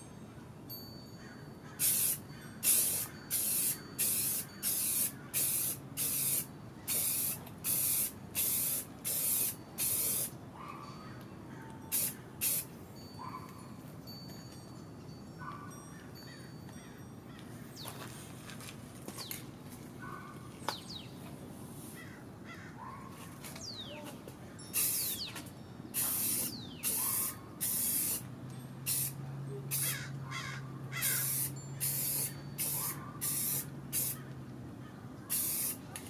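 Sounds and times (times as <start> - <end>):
aerosol can spraying: 1.8 - 10.3, 11.9 - 12.7, 24.8 - 25.2, 26.0 - 28.2, 28.9 - 29.9, 31.0 - 34.2, 35.3 - 35.8.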